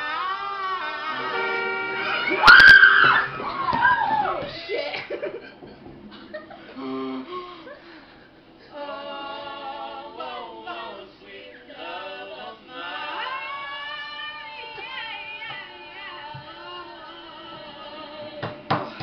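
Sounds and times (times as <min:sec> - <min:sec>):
girls singing rock song: 0:00.1 - 0:04.6, 0:08.7 - 0:19.0.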